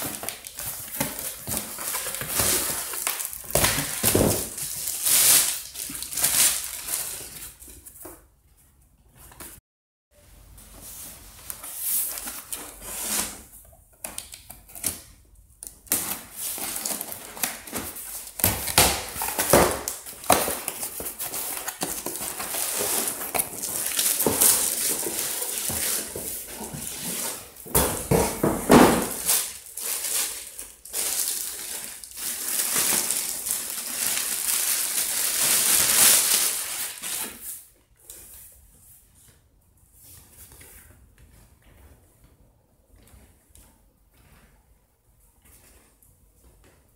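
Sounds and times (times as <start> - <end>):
plastic bag crinkling: 0.0 - 7.6, 19.0 - 27.7, 29.0 - 37.4.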